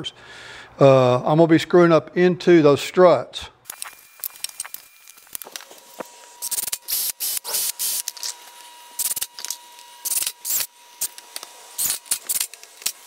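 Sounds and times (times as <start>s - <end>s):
power driver driving screws into wood: 3.7s - 13.0s.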